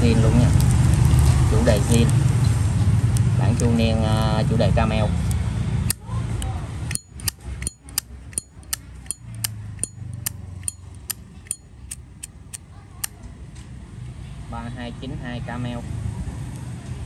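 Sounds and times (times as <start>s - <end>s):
lighter lid clicking open and shut: 6.9s - 12.0s.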